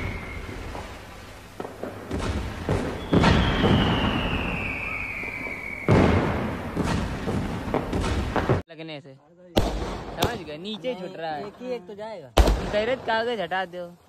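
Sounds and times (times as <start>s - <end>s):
falling firework whistle: 0.0s - 7.1s
firework thumps and bangs: 0.0s - 8.7s, 9.6s - 10.7s, 12.4s - 13.3s.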